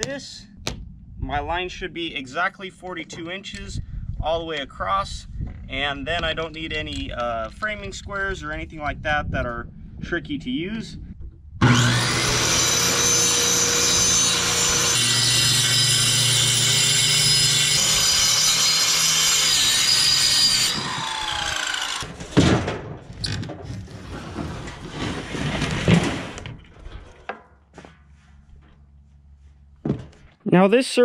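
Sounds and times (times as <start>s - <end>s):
circular saw cutting board: 11.6s - 22.4s.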